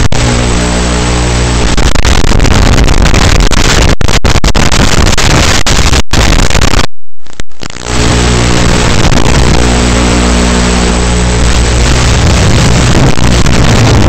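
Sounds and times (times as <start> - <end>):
low buzz: 0.0 - 14.0
static hiss: 0.0 - 14.0.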